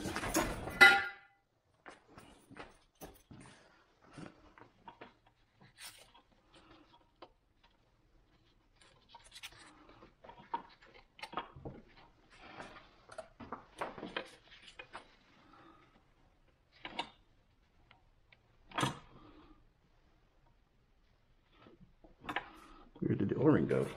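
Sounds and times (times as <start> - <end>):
gloved hands clicking and scraping: 4.1 - 19.3.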